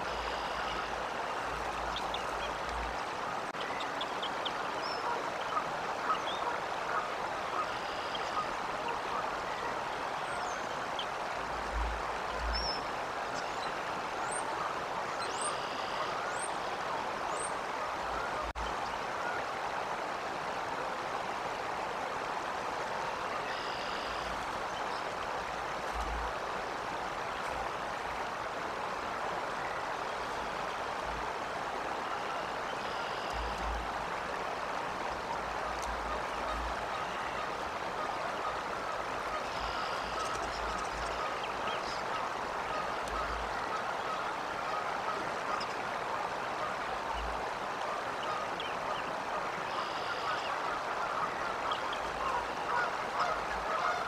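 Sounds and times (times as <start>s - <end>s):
rushing water: 0.0s - 54.0s
faint high-pitched calls: 49.7s - 50.6s.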